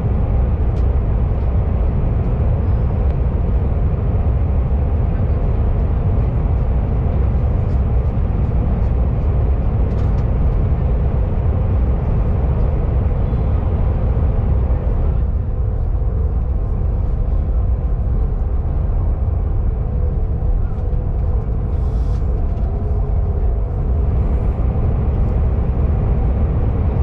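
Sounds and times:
faint hum: 0:00.0 - 0:27.0
train cabin rumble: 0:00.0 - 0:27.0.

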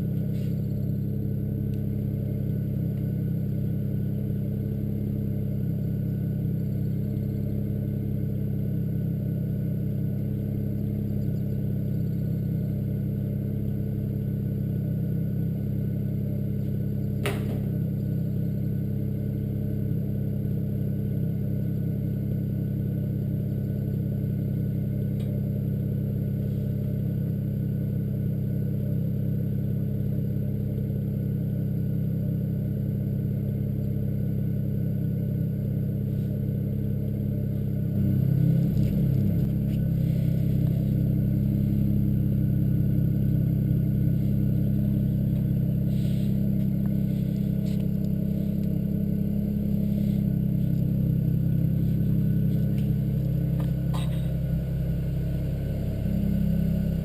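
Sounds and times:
car engine idling: 0:00.0 - 0:57.0.

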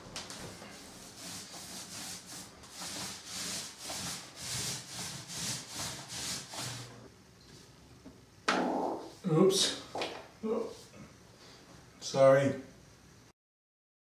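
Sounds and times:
paint roller swishing on wall: 0:00.0 - 0:07.0.

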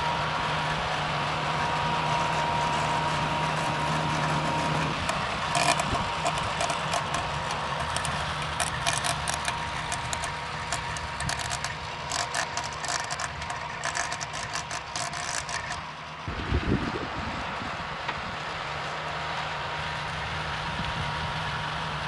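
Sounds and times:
rotary tiller working soil: 0:00.0 - 0:22.0
tractor diesel engine running: 0:00.0 - 0:22.0
sharp clicks and rattles: 0:04.0 - 0:16.0.

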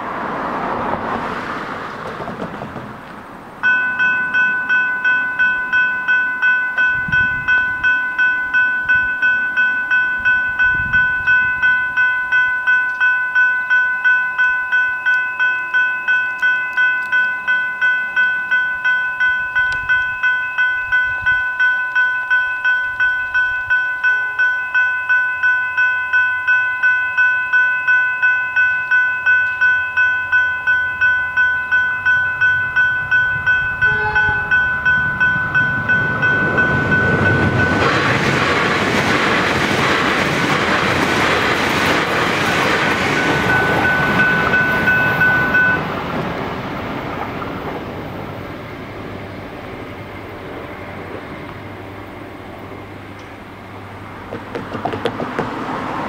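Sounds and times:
approaching train: 0:00.0 - 0:56.0
level crossing bells ringing: 0:03.6 - 0:46.1.

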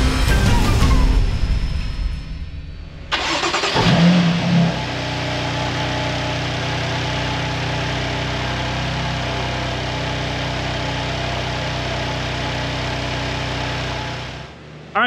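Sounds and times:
car engine idling: 0:03.1 - 0:15.0.

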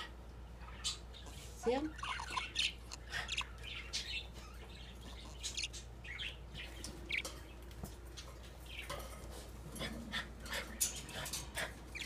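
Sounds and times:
budgerigars chirping: 0:00.6 - 0:07.6.

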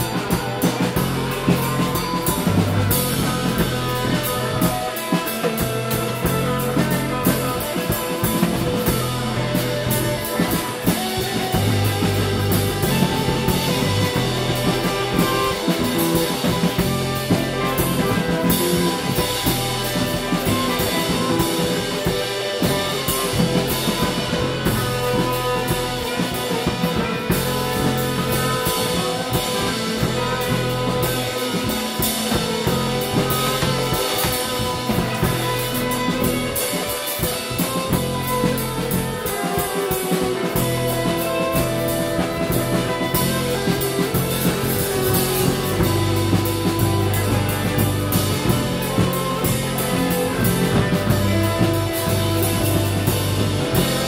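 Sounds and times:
drum kit: 0:00.0 - 0:54.0
electric bass: 0:00.0 - 0:54.0
electric guitar: 0:00.0 - 0:54.0
saxophone: 0:00.0 - 0:54.0.

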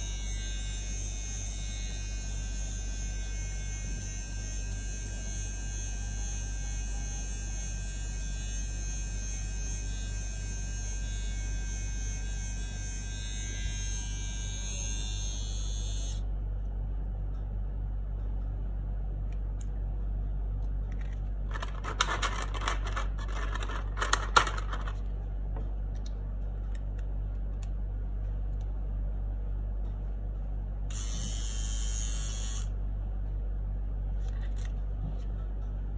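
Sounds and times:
trimmer motor whirring: 0:00.0 - 0:16.2, 0:30.9 - 0:32.7
steady low hum: 0:00.0 - 0:35.9
plastic clicks and rattles: 0:20.9 - 0:25.0.

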